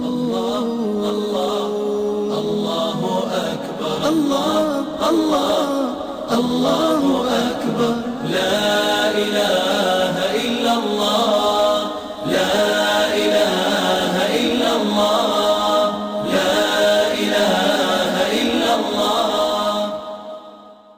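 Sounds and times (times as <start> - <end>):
a cappella choir chanting: 0.0 - 20.9.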